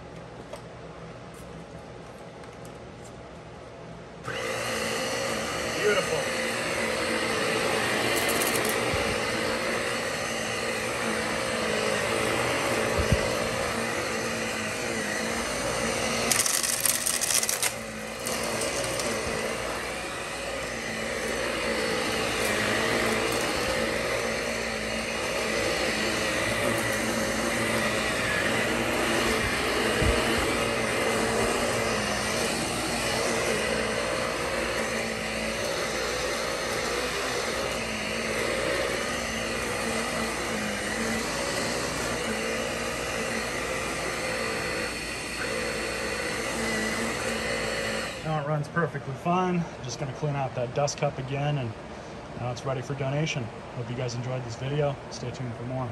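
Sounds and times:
upright vacuum running: 0:04.2 - 0:55.9
vacuum rattling: 0:04.3 - 0:48.3.

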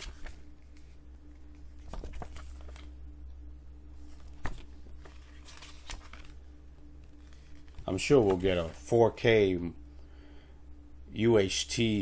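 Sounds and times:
paper booklet rustling: 0:00.0 - 0:02.9, 0:04.0 - 0:09.0
steady low hum: 0:00.0 - 0:12.0.

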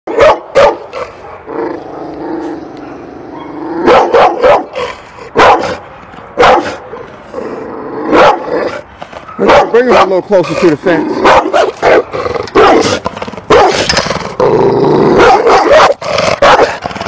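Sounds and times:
dog barking: 0:00.1 - 0:01.5, 0:02.8 - 0:05.8, 0:06.4 - 0:07.1, 0:08.1 - 0:08.7, 0:09.3 - 0:10.2, 0:11.2 - 0:13.8, 0:15.2 - 0:16.8.

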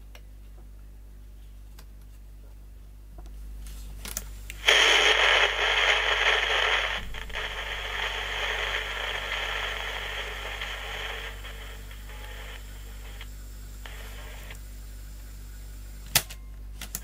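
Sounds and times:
cassette playback through small speaker: 0:04.0 - 0:17.0.

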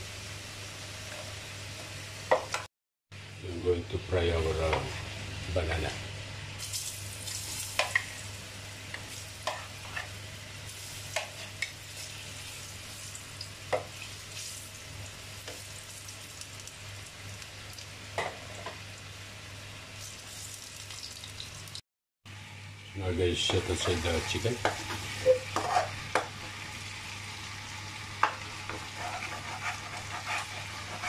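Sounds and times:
food sizzling in hot oil: 0:04.4 - 0:21.8, 0:23.2 - 0:31.0
metal spoon scraping pan: 0:25.2 - 0:26.0.

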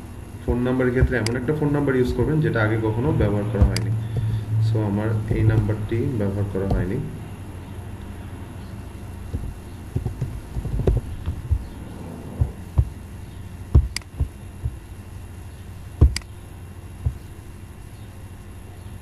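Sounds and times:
low steady hum: 0:00.0 - 0:19.0
knocks: 0:03.6 - 0:04.4, 0:06.6 - 0:06.9, 0:09.3 - 0:11.7, 0:12.4 - 0:13.0, 0:13.7 - 0:14.8, 0:16.0 - 0:16.2
mouse clicks: 0:13.9 - 0:14.1.

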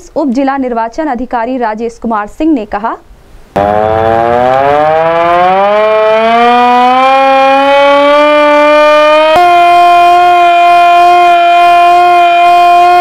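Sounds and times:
hand-cranked siren wailing: 0:03.6 - 0:13.0.

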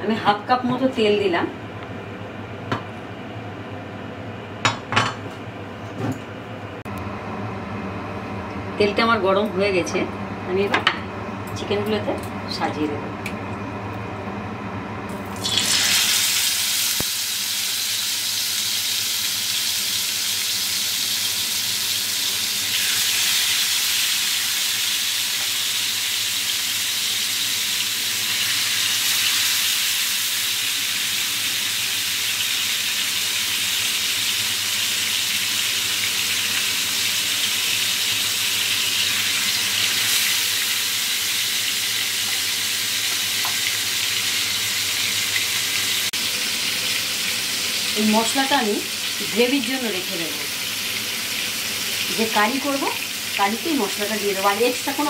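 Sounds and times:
chicken frying in hot oil: 0:15.2 - 0:55.0.

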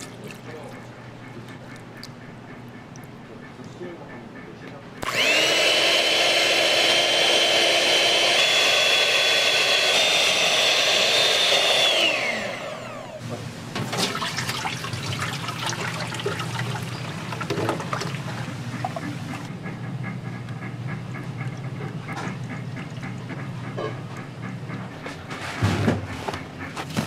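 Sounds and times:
electric mixer whine: 0:05.0 - 0:13.2.

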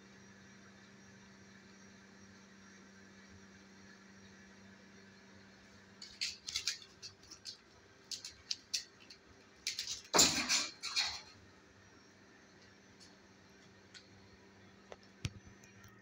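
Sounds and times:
kitten claws scratching: 0:06.0 - 0:10.1.

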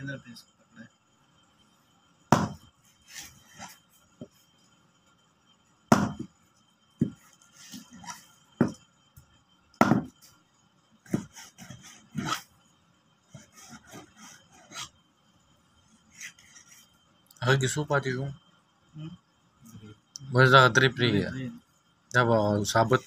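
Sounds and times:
knife chopping on cutting board: 0:02.3 - 0:02.6, 0:05.9 - 0:06.3, 0:09.8 - 0:10.1, 0:11.1 - 0:11.4.

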